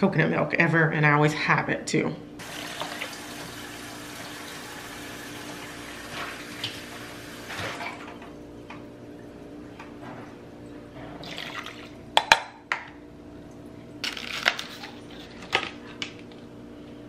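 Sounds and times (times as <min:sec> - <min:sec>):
water pouring into a pot: 0:02.4 - 0:07.8, 0:11.2 - 0:12.0.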